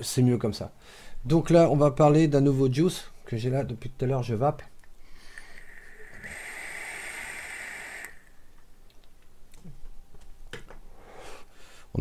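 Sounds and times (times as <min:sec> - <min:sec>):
electronic cigarette hiss: 0:05.1 - 0:08.6.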